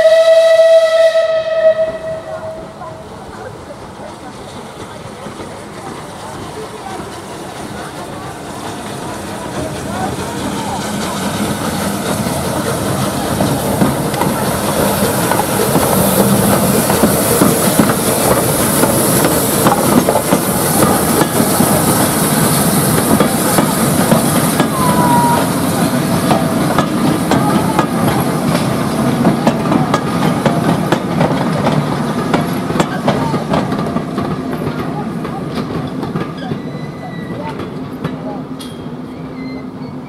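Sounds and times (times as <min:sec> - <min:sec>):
steam locomotive passing: 0:00.0 - 0:40.0
steam hissing from cylinders: 0:02.8 - 0:40.0
wheels clicking over rail joints: 0:03.3 - 0:39.6
wheel squeal: 0:36.4 - 0:37.6, 0:39.0 - 0:40.0.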